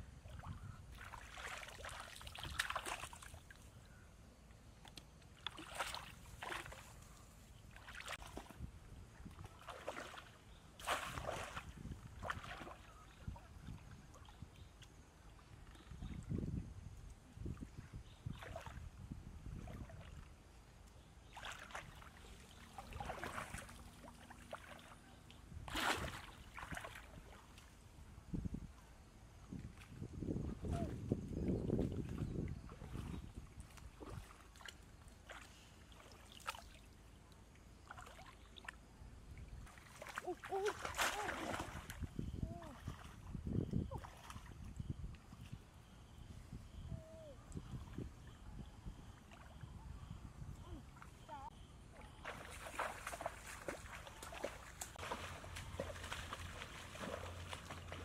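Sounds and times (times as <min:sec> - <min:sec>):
shallow water splashing: 0:00.3 - 0:03.6, 0:05.3 - 0:07.0, 0:09.4 - 0:13.4, 0:21.2 - 0:27.5, 0:39.6 - 0:43.3, 0:52.0 - 0:58.0.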